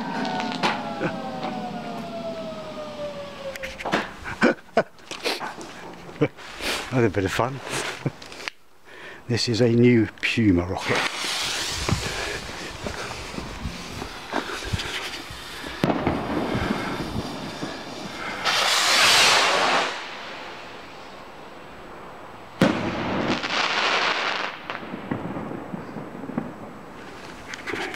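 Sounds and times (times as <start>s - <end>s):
firework bang: 0.0s - 4.4s, 10.8s - 20.8s, 22.6s - 26.6s
crackling stars bursting: 0.0s - 8.6s, 10.2s - 27.9s
firework fizzing and crackling: 0.0s - 8.6s, 10.6s - 27.9s
rocket launch whoosh: 10.8s - 20.9s.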